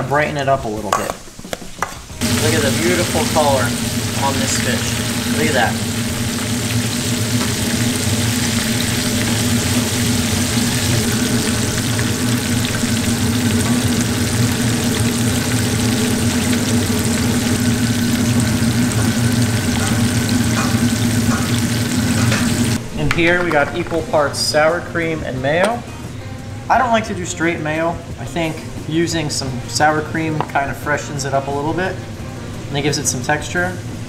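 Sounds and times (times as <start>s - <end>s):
fish deep-frying in hot oil: 2.2s - 22.8s
low hum: 2.2s - 26.8s.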